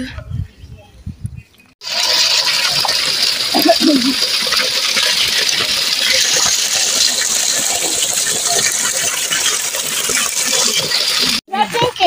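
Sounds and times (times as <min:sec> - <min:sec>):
small waterfall splashing into pool: 0:01.8 - 0:11.4.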